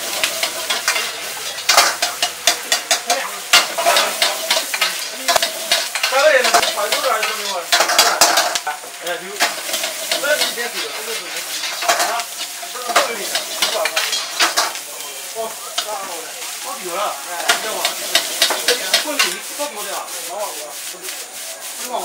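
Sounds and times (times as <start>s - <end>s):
food sizzling in hot oil: 0.0s - 22.0s
spatula scraping a wok: 0.0s - 22.0s.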